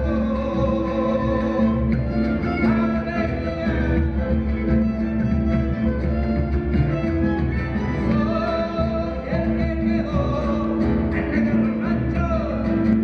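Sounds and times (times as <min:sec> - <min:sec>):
person singing: 0:00.0 - 0:04.6, 0:08.0 - 0:13.0
folk band playing: 0:00.0 - 0:13.0.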